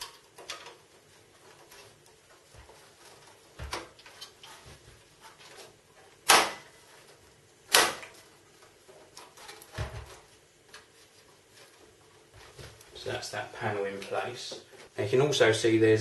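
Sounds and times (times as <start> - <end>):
sheet metal snapping into place: 6.2 - 6.7, 7.7 - 8.2.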